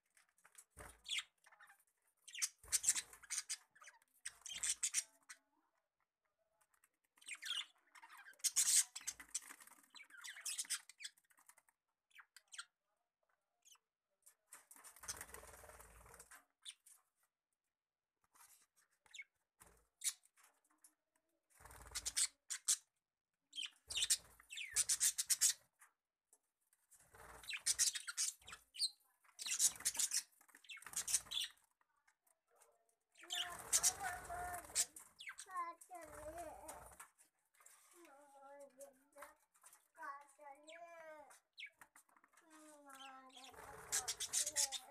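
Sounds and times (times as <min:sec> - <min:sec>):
budgerigars chirping: 0:02.3 - 0:05.1, 0:23.6 - 0:25.6, 0:27.4 - 0:31.6, 0:33.2 - 0:35.5, 0:43.3 - 0:44.9.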